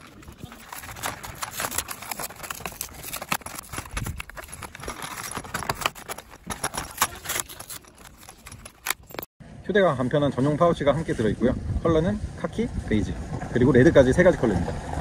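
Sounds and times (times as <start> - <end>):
blister pack crackling and clicking: 0.0 - 9.3.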